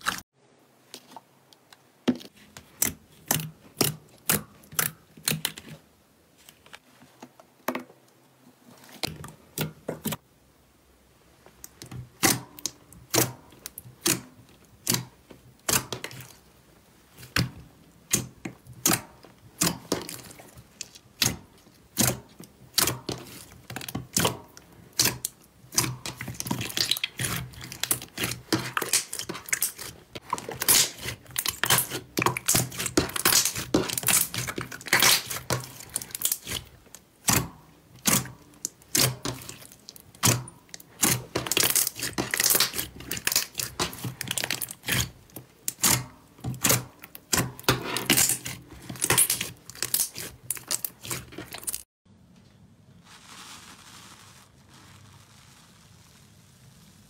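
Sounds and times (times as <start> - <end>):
slime crackling and popping: 19.6 - 51.8.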